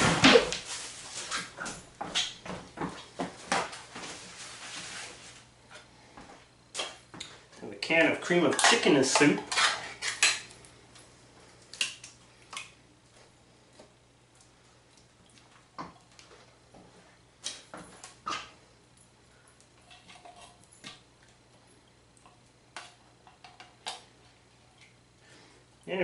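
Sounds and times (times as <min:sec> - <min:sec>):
spoon scraping metal can: 0:08.3 - 0:10.4.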